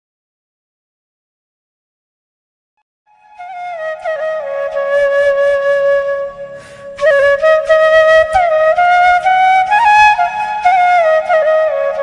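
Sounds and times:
flute-like melody: 3.1 - 12.0.

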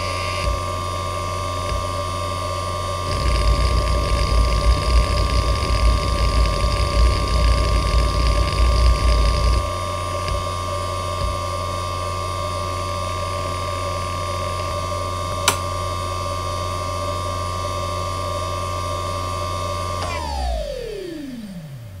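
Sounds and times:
hard drive spindle whine: 0.0 - 22.0
hard drive click: 15.5 - 15.7.

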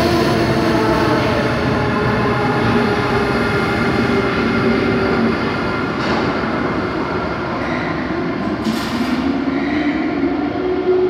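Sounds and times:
train rumbling past: 0.0 - 11.0.

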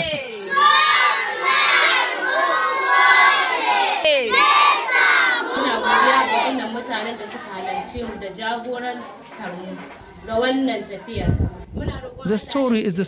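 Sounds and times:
children shouting and cheering: 0.0 - 8.2.

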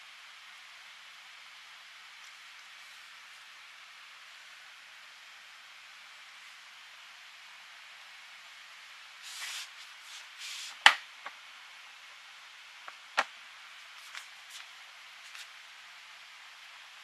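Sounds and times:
steady hiss: 0.0 - 17.0
soft rustling: 9.2 - 10.9, 12.9 - 15.6.

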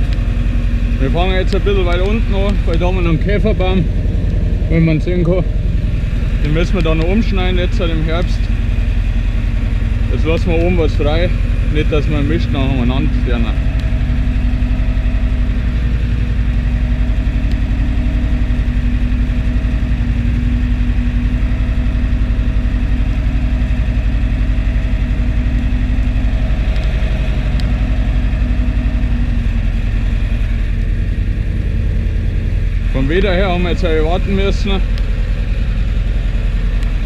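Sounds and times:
tractor diesel engine running: 0.0 - 37.0.

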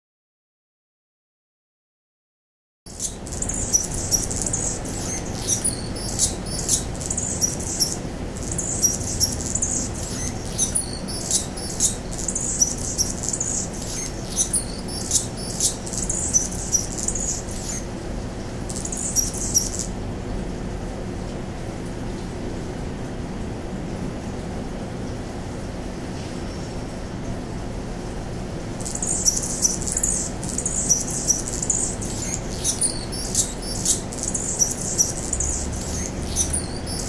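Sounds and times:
hummingbird song: 2.9 - 17.9, 18.7 - 20.0, 28.8 - 37.0.

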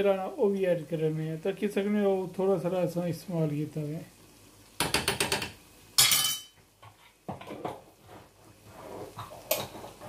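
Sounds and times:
spatula scraping a wok: 8.0 - 10.0.

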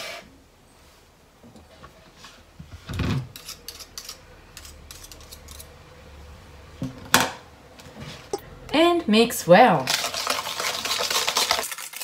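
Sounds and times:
whisk clicking in plastic bowl: 9.9 - 11.7.

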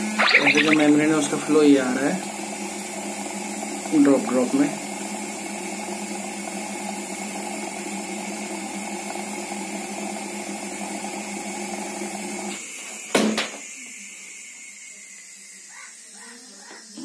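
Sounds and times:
pump humming: 0.0 - 6.9.

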